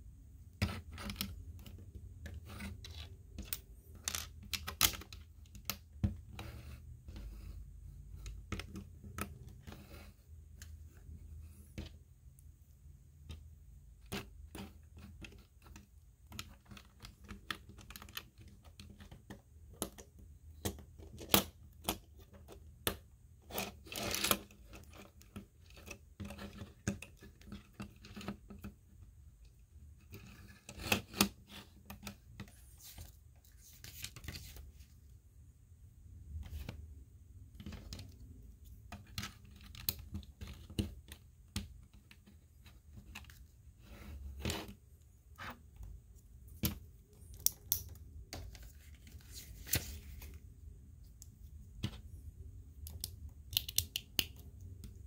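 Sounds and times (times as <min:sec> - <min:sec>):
plastic bricks snapping together: 0:52.8 - 0:54.4.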